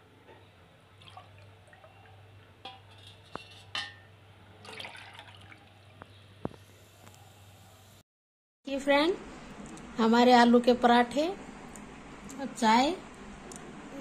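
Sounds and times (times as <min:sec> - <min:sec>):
milk splashing and pouring: 0:01.0 - 0:01.8, 0:04.6 - 0:05.8.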